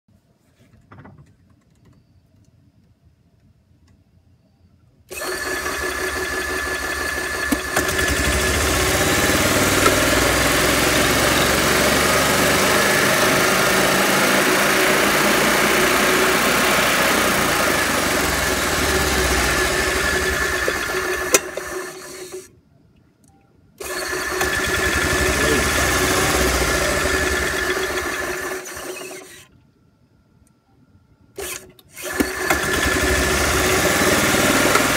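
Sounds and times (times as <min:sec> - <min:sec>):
drive belt spinning: 0:05.1 - 0:22.5, 0:23.8 - 0:29.4, 0:31.4 - 0:34.9
golf cart engine running: 0:05.5 - 0:22.5, 0:24.0 - 0:29.0, 0:32.3 - 0:34.9.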